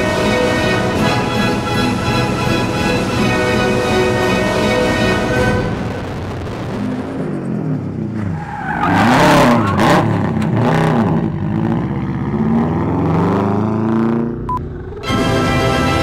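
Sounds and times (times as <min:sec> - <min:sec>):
car engine revving: 0:00.0 - 0:16.0
tires squealing on concrete: 0:07.1 - 0:14.0.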